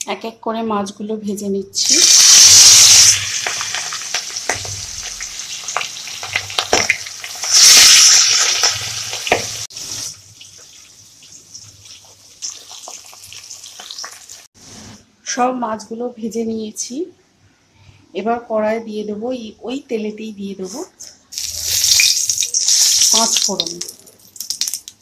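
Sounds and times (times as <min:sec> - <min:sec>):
fish sizzling in hot oil: 0:01.8 - 0:14.5, 0:21.3 - 0:25.0
oil crackling pops: 0:21.4 - 0:25.0.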